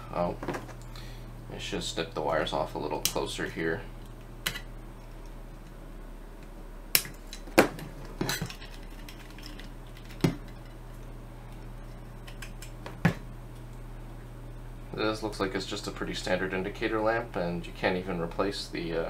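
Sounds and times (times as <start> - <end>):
wire cutters snipping wires: 6.9 - 10.6.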